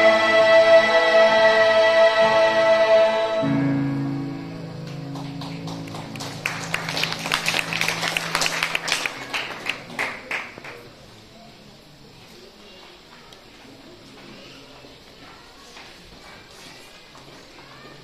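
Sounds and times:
instrumental chord ringing: 0:00.0 - 0:09.4
choir singing chord: 0:00.0 - 0:09.9
audience clapping: 0:04.8 - 0:10.9.

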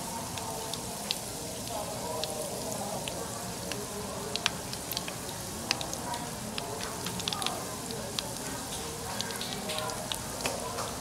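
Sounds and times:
oil popping and crackling: 0:00.0 - 0:11.0
oil sizzling: 0:00.0 - 0:11.0.

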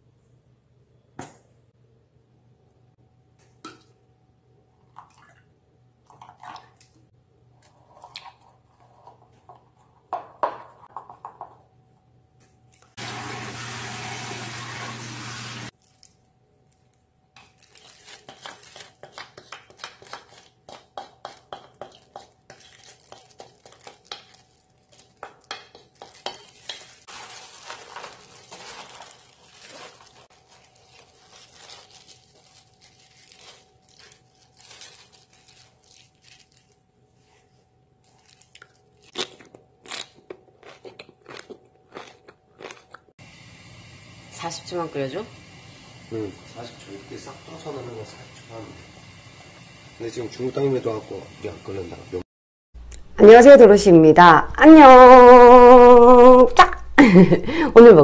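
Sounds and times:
tap water running into colander: 0:13.0 - 0:15.7
gloved hands crinkling cabbage: 0:15.7 - 0:39.4.

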